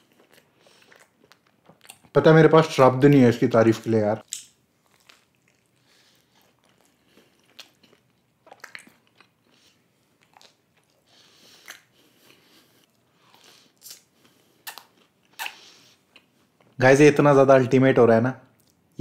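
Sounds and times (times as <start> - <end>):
person chewing food: 0.0 - 2.1, 4.2 - 16.8.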